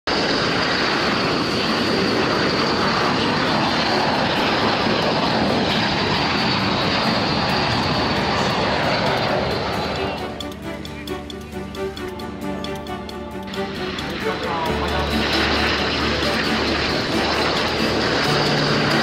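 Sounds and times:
high jet whine: 0:00.1 - 0:19.0
jet engine noise: 0:00.1 - 0:19.0.

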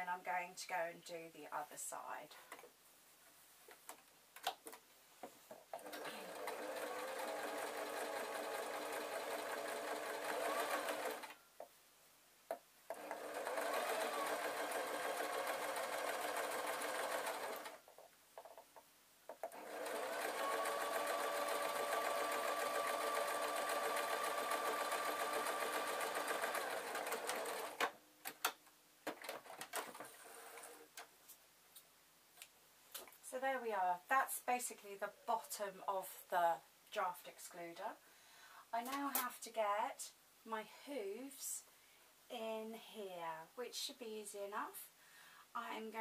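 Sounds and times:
electric sewing machine stitching: 0:05.8 - 0:11.3, 0:12.9 - 0:17.8, 0:19.4 - 0:28.0.

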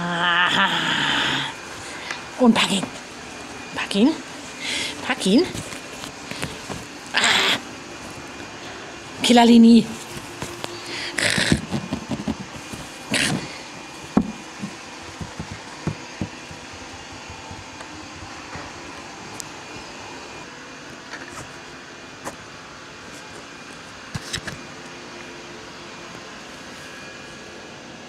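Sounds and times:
steady background hum: 0:00.0 - 0:28.0
cat rustling fabric tunnel: 0:01.6 - 0:19.0.

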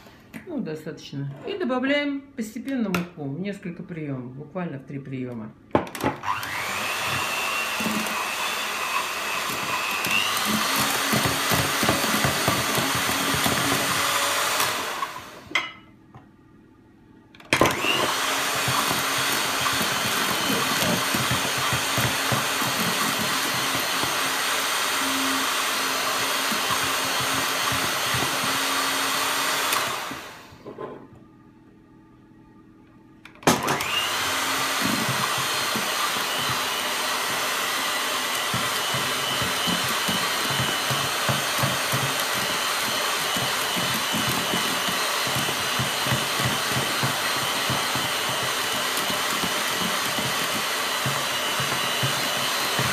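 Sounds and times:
electric hand mixer whine: 0:06.0 - 0:15.6, 0:17.6 - 0:30.6, 0:33.4 - 0:52.9.

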